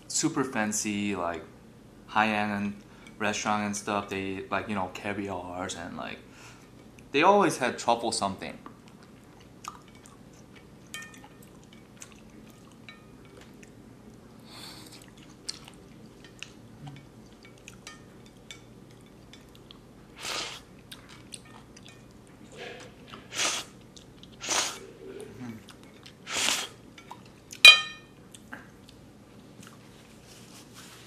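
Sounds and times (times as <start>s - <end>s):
person chewing noodles: 8.9s - 17.8s
loud noodle slurps: 24.4s - 24.9s.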